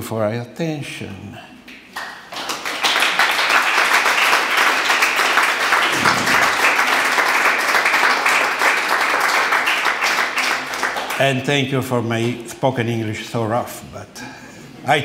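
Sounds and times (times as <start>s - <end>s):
audience applauding: 2.0s - 11.4s.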